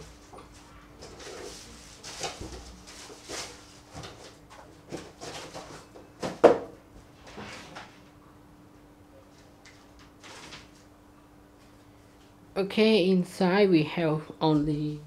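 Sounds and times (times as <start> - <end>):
faint steady hum: 0.0 - 15.0
plastic wrapping rustling: 1.0 - 5.9, 10.0 - 10.8.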